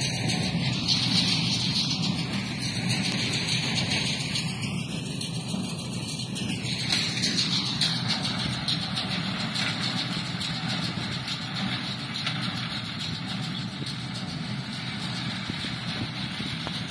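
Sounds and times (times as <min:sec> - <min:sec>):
tractor engine humming: 0:00.0 - 0:16.9.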